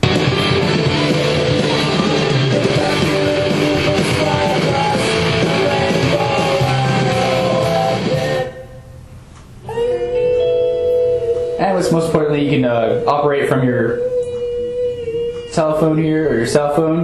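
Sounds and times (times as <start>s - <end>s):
guitar music from a speaker: 0.0s - 8.6s, 9.7s - 14.0s.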